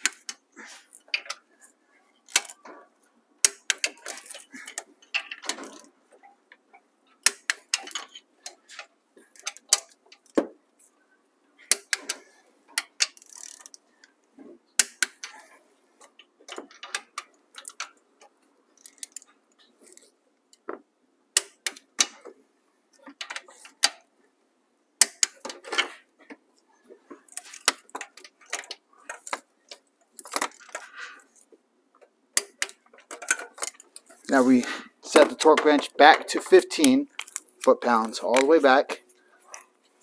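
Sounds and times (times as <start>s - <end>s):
torque wrench clicking: 13.0s - 13.8s
torque wrench ratcheting: 13.0s - 13.8s.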